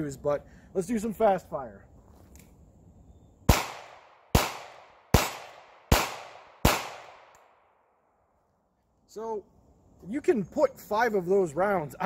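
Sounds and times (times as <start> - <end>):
revolver gunshots: 3.5 - 7.4.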